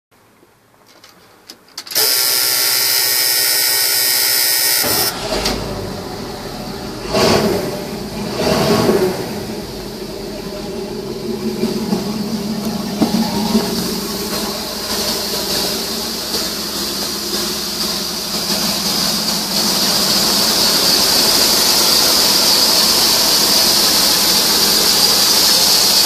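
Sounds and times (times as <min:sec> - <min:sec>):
starter motor cranking: 0:01.0 - 0:06.0, 0:11.1 - 0:26.0
truck engine idling: 0:04.8 - 0:26.0.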